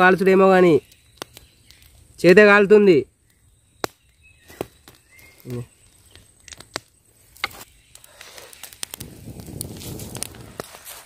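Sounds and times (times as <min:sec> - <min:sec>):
wood fire crackling: 0:00.0 - 0:11.0
rustling: 0:04.5 - 0:11.0.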